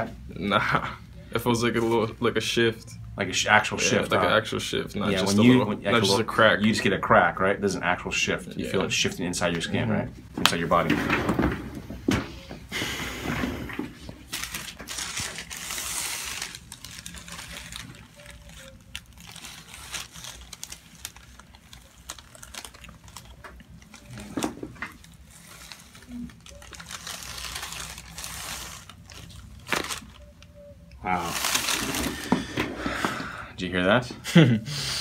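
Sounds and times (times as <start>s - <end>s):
paper crinkling: 13.7s - 30.5s, 31.1s - 32.6s.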